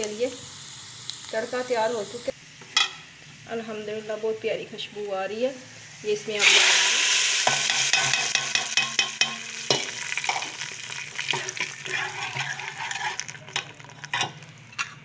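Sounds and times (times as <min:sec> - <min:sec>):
spices sizzling in a pot: 0:00.0 - 0:14.7.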